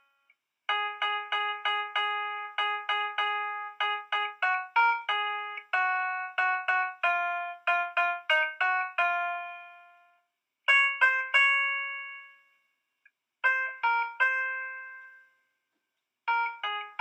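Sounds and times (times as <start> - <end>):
plucked notes music: 0.7 - 10.0, 10.7 - 12.3, 13.4 - 15.2.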